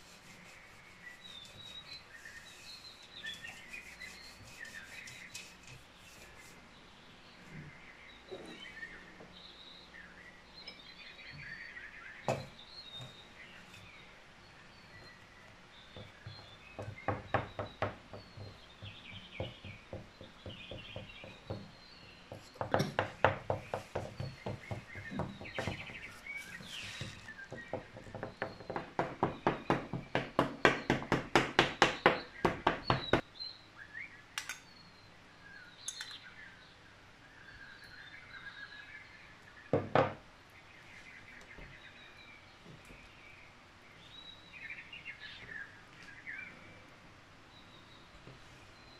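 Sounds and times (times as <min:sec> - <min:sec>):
birdsong: 0:00.0 - 0:48.9.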